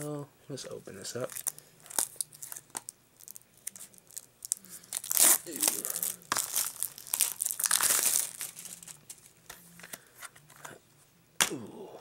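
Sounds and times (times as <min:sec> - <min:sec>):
plastic wrap crinkling: 0:01.2 - 0:09.5.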